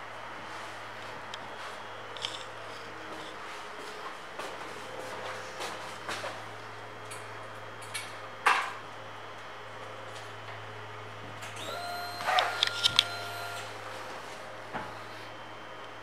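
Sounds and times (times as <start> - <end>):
fuel pump whine: 9.0 - 16.0.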